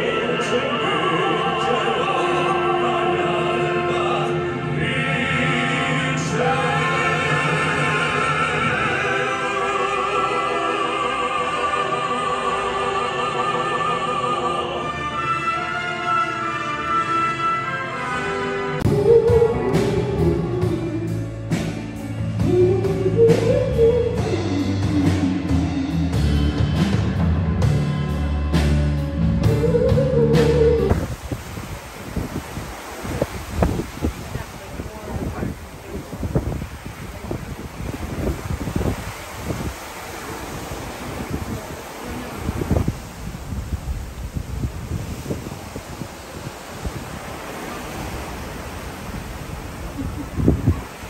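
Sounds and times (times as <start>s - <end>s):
male vocal quartet singing: 0.0s - 15.8s
other instruments: 14.2s - 31.0s
drum kit beat: 18.9s - 31.0s.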